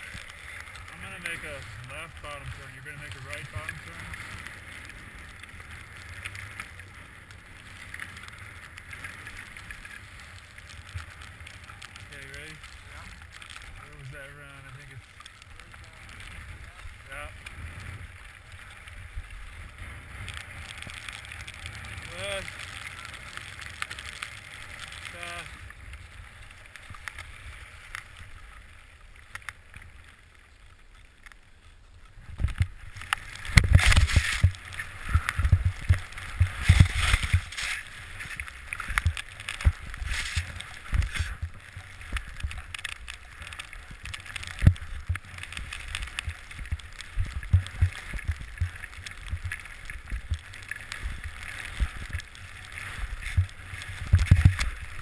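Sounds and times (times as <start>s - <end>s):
wind on microphone: 32.2s - 42.6s, 52.9s - 55.0s
skis hissing through snow: 33.7s - 38.9s, 39.6s - 41.4s.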